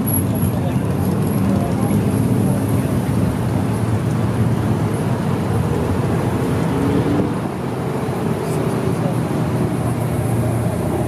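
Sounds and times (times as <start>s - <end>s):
road traffic passing: 0.0s - 11.0s.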